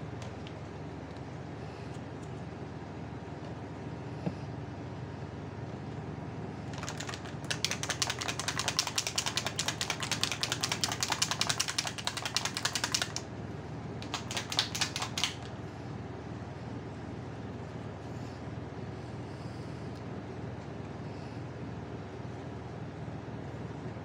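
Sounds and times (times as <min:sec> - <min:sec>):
rapid even clicking: 0:06.7 - 0:13.3, 0:14.0 - 0:15.6.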